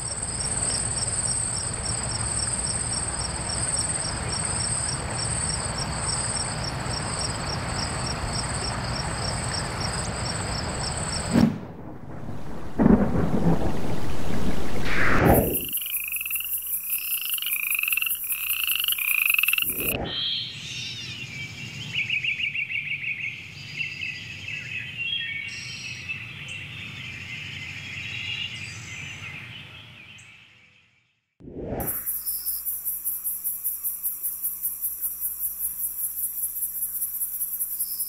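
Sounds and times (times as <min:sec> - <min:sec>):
high insect drone: 0:00.0 - 0:11.3, 0:14.8 - 0:20.0, 0:31.8 - 0:38.0
rushing noise: 0:11.3 - 0:16.0, 0:19.4 - 0:20.2, 0:31.4 - 0:32.1
trilling frog calls: 0:15.5 - 0:20.4, 0:31.9 - 0:38.0
frog calling: 0:15.6 - 0:20.3.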